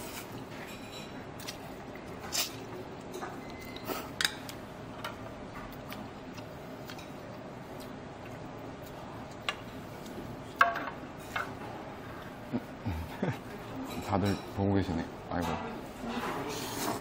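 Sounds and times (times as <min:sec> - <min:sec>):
metal utensils clinking on bowls: 0:13.8 - 0:14.6.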